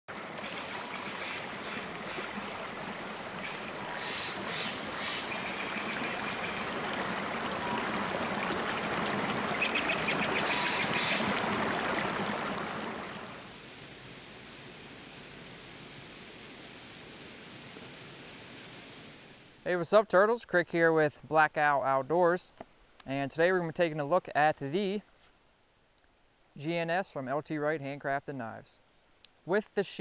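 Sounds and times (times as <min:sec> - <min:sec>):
stream rushing over rocks: 0:00.1 - 0:13.6.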